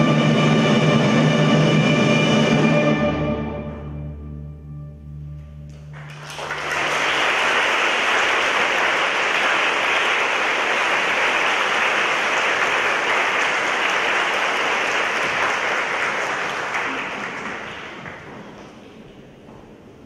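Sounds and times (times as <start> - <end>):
orchestra playing low notes: 0.0 - 17.8
audience applause: 5.9 - 18.6.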